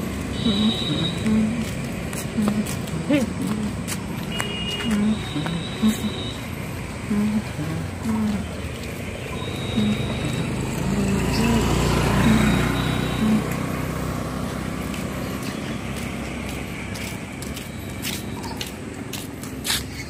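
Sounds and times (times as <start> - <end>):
motorbike engine passing by: 5.4 - 17.4.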